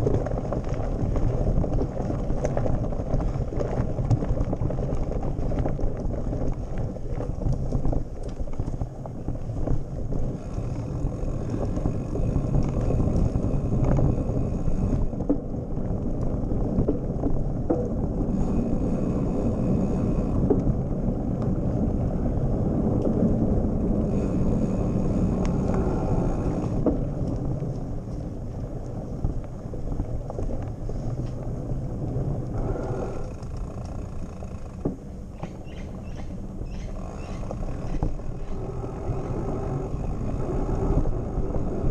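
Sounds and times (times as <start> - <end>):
bike rattling over bumps: 0.0 - 41.9
wind rumble on microphone: 0.0 - 41.9.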